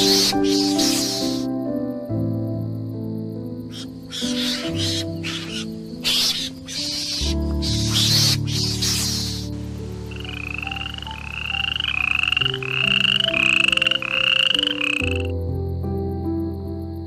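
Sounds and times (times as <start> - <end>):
background music: 0.0 - 17.0
animal giving buzzy calls: 3.7 - 9.5.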